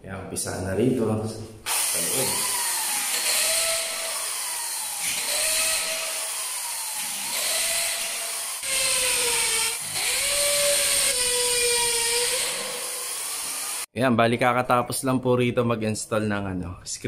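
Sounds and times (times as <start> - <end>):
electric drill whining: 1.7 - 13.9.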